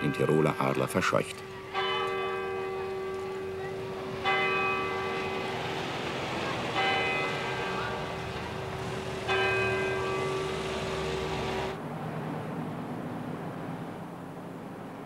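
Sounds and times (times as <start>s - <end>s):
bell tolling: 0.0s - 6.1s, 6.7s - 8.4s, 9.2s - 11.7s.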